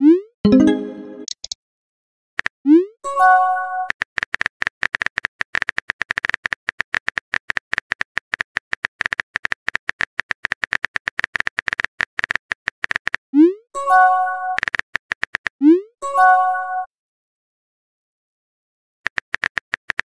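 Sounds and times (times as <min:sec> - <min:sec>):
keyboard typing clicks: 0:00.5 - 0:01.6.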